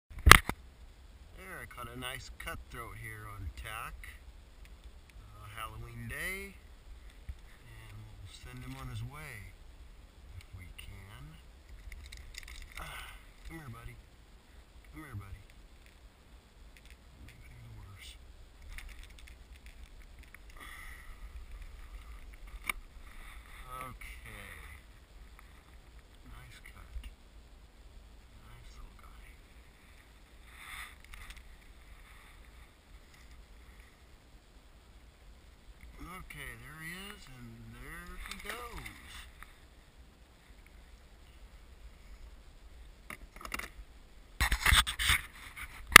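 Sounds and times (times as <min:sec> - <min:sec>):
fishing gear scraping and rubbing: 0:29.7 - 0:33.8.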